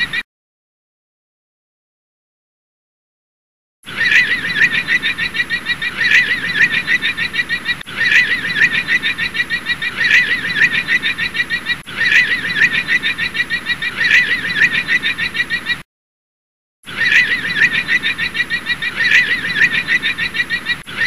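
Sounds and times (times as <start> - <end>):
llama high-pitched cries: 16.9 - 21.0.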